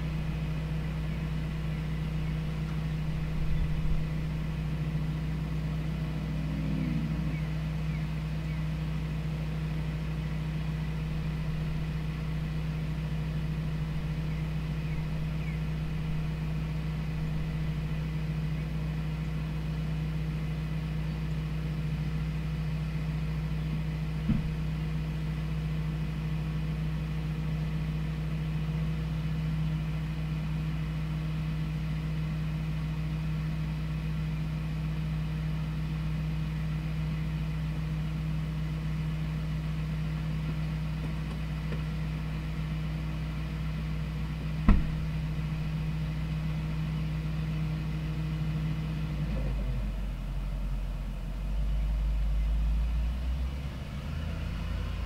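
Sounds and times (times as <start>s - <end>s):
vehicle engine idling: 0.0s - 55.0s
sharp knock: 44.7s - 45.0s.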